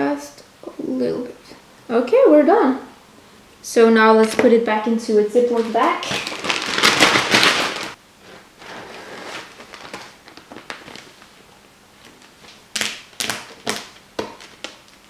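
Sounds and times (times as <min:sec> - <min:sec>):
plastic bag crinkling: 0:05.4 - 0:11.4.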